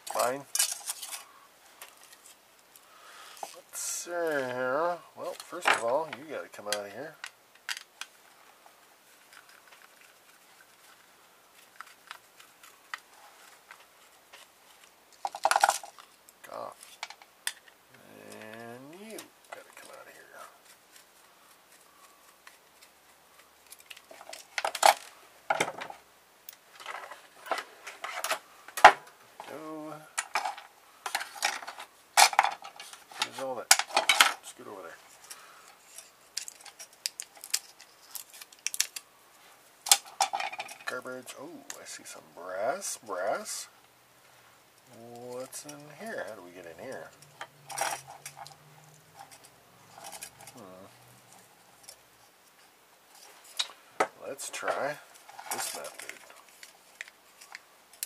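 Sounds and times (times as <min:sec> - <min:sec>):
plastic parts clicking and knocking: 0:05.3 - 0:08.1, 0:11.6 - 0:16.2, 0:16.8 - 0:20.0, 0:21.7 - 0:29.1, 0:30.2 - 0:34.5, 0:35.2 - 0:39.0, 0:39.8 - 0:40.9.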